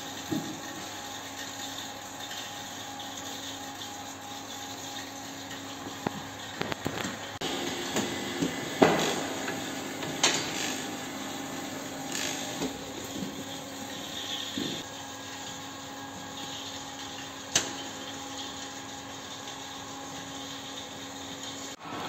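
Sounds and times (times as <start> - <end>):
steady mechanical hum: 0.0 - 22.0.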